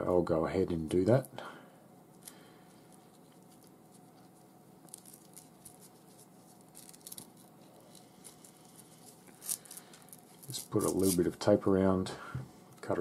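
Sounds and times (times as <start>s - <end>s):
masking tape crackling: 2.1s - 11.4s.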